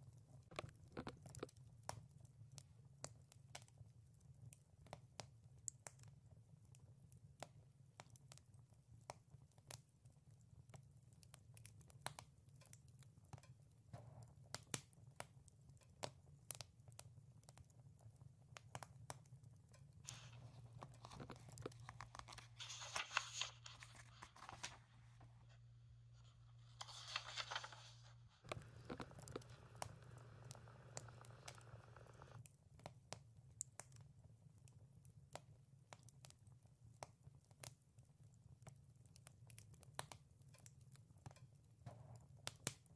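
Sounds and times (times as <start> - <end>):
page swishes: 20.1 - 25.6, 26.3 - 31.1
book pages rustling: 20.1 - 32.4
low steady hum: 20.1 - 32.4
wood fire crackling and popping: 26.8 - 34.0.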